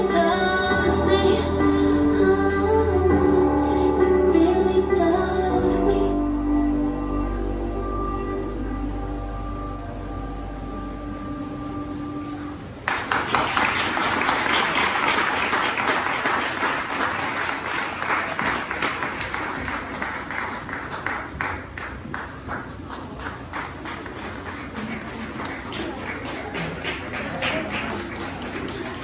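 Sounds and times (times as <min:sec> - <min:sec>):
slow song held notes: 0:00.0 - 0:12.8
crowd applause: 0:12.8 - 0:29.0.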